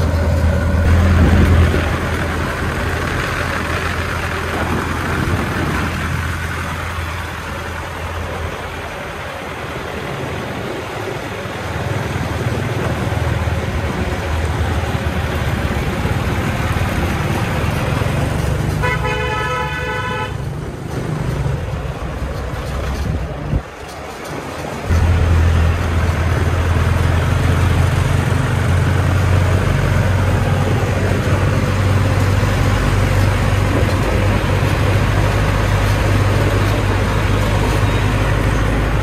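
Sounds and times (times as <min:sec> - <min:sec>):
diesel truck engine running: 0:00.0 - 0:39.0
vehicle horn: 0:18.8 - 0:20.5.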